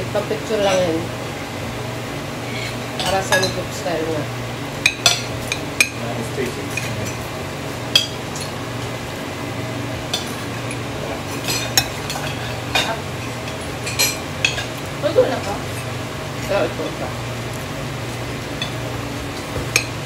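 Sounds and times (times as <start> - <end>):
steady low hum: 0.0 - 20.0
utensils clinking on grill pan: 0.6 - 1.0, 3.0 - 3.7, 4.8 - 7.3, 7.9 - 8.6, 10.1 - 16.8, 18.5 - 18.9, 19.7 - 20.0.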